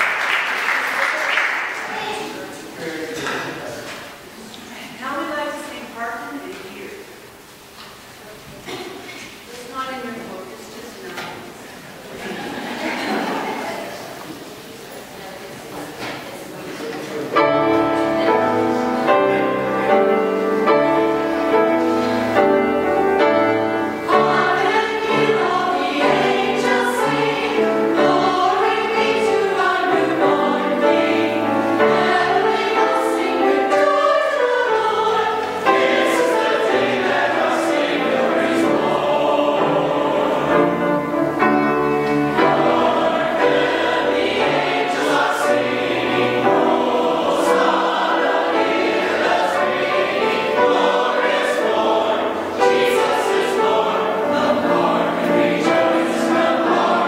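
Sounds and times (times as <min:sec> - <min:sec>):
mixed choir singing in harmony: 0:12.0 - 0:14.8, 0:16.4 - 0:57.0.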